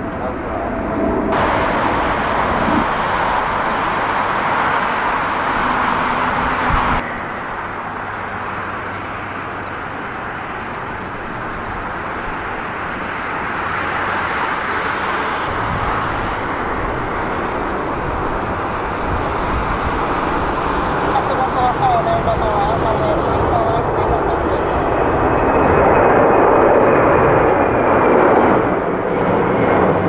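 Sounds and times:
jet engines roaring: 0:00.0 - 0:30.0.

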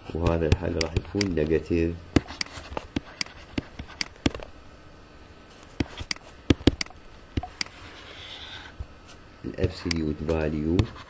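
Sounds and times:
stylus clicking on tablet screen: 0:02.2 - 0:04.4.

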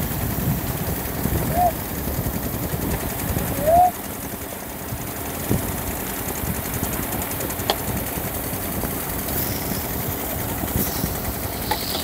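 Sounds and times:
water pump engine running: 0:00.0 - 0:12.0
water spraying on stone steps: 0:07.5 - 0:12.0.

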